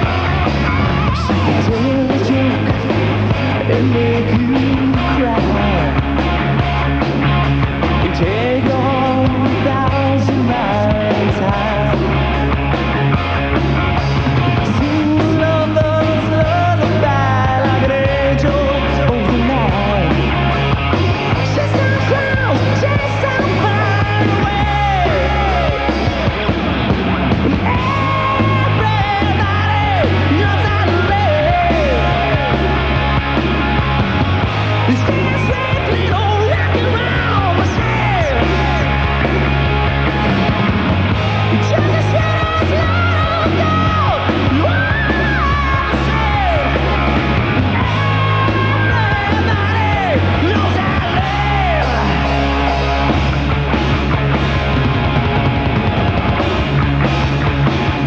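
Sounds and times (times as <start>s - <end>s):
bass guitar: 0.0s - 58.0s
drums: 0.0s - 58.0s
electric guitars: 0.0s - 58.0s
man singing: 1.3s - 6.2s, 8.0s - 12.4s, 14.6s - 20.3s, 21.3s - 26.1s, 27.6s - 32.8s, 34.9s - 38.9s, 41.5s - 47.0s, 47.7s - 52.4s.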